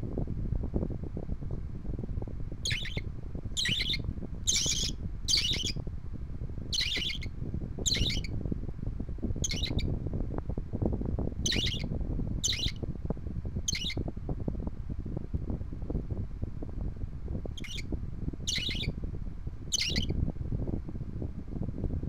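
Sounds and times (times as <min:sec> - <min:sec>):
electric fan rushing: 0:00.0 - 0:22.0
budgerigar chick calling: 0:02.7 - 0:03.0, 0:03.6 - 0:05.7, 0:06.8 - 0:07.3, 0:07.9 - 0:08.3, 0:09.4 - 0:09.8, 0:11.5 - 0:11.8, 0:12.4 - 0:12.8, 0:13.7 - 0:14.0, 0:17.6 - 0:17.8, 0:18.5 - 0:18.9, 0:19.8 - 0:20.1.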